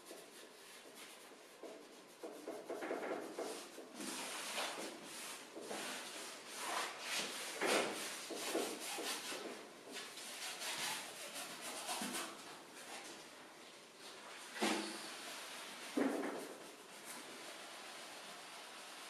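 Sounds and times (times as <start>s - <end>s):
brush and sponge dabbing canvas: 0.0s - 13.1s.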